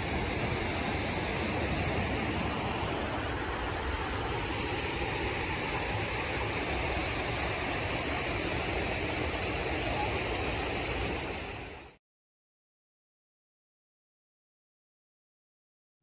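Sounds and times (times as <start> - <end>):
waterfall rushing into pool: 0.0 - 12.0.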